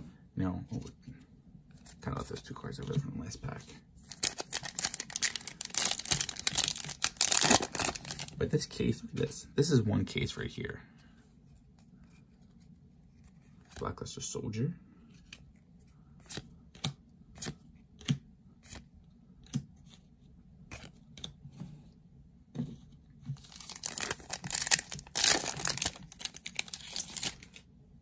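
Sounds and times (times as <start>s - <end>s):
cards clicking and snapping: 16.2s - 18.8s
crinkling rustle: 23.4s - 27.6s.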